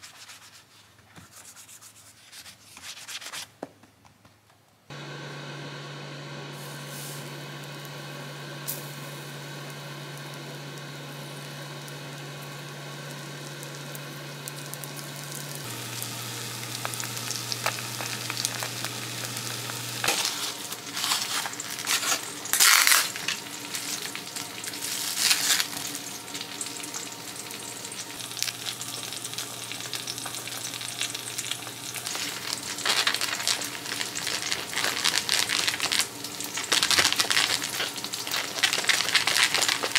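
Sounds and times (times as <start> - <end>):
induction hob hum: 4.9 - 39.9
oil sizzling in pan: 5.0 - 39.9
plastic film crackling: 13.5 - 39.9.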